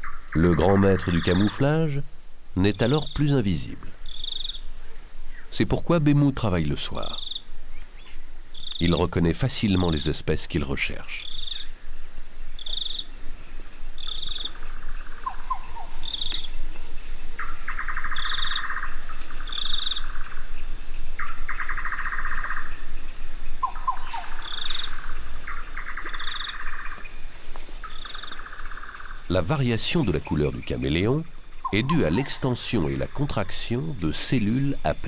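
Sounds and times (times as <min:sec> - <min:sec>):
cricket trill: 0:00.0 - 0:35.0
rattling pulsed calls: 0:14.0 - 0:35.0.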